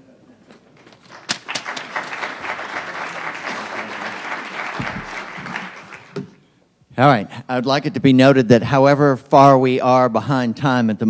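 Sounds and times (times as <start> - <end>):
audience applauding: 0.9 - 6.4.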